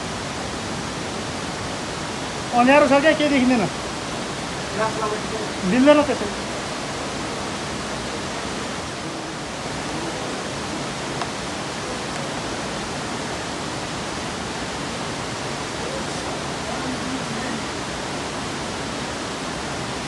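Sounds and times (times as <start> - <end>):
waterfall rushing: 0.0 - 20.0
faint voices: 4.6 - 19.9.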